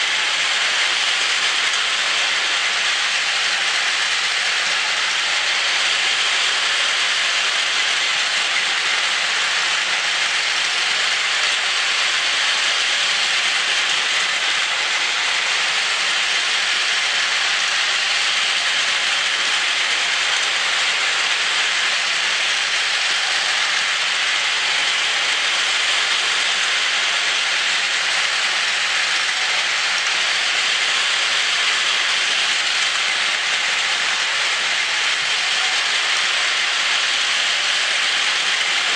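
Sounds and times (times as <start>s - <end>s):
toy trains whirring on plastic track: 0.0s - 38.9s.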